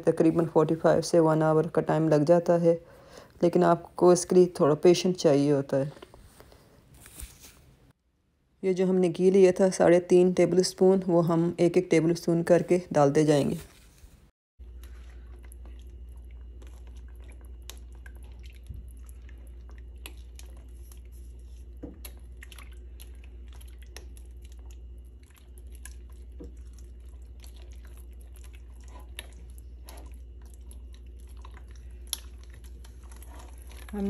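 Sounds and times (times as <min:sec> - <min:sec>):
steady low hum: 0:08.4 - 0:34.0
wet squelches: 0:14.6 - 0:34.0.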